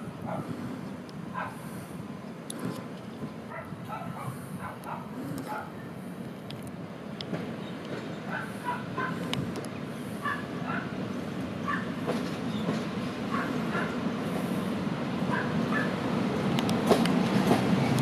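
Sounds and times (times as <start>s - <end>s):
electric locomotive rumble: 0.0s - 18.0s
dog barking: 0.3s - 0.5s, 1.4s - 1.6s, 3.5s - 5.7s, 8.3s - 9.2s, 10.2s - 10.9s, 11.6s - 11.9s, 13.3s - 14.0s, 15.3s - 15.9s
sharp clicks: 16.6s - 17.2s.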